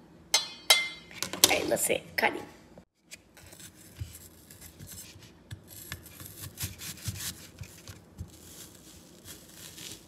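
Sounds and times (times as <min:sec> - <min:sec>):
knife cutting apple: 0:03.1 - 0:10.0.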